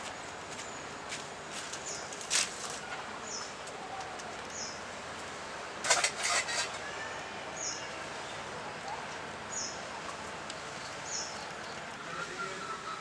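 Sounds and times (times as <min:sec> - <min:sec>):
metal dishes clattering: 0:05.8 - 0:06.8
steel utensils clinking in basket: 0:05.8 - 0:06.8
bird chirping: 0:07.6 - 0:13.0.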